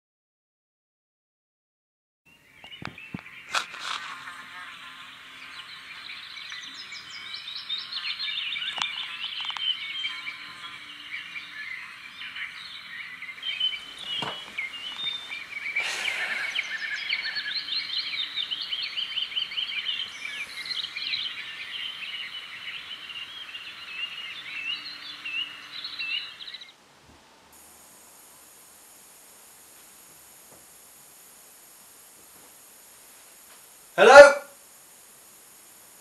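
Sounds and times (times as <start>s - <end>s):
birds chirping in chorus: 2.3s - 26.8s
sharp click: 2.7s - 4.1s
brief rush of noise: 15.8s - 17.4s.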